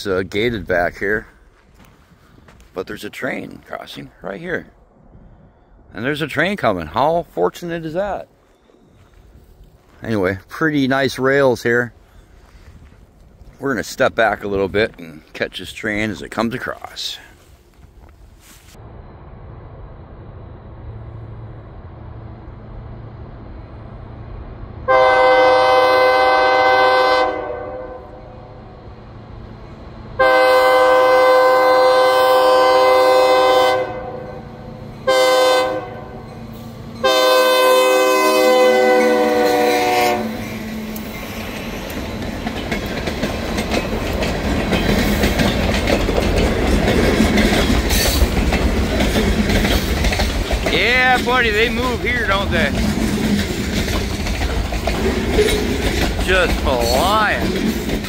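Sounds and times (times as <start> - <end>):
locomotive air horn: 24.9 - 28.3, 30.2 - 36.3, 37.0 - 40.6
locomotive engine rumble: 28.1 - 58.0
train wheel noise: 30.8 - 58.0.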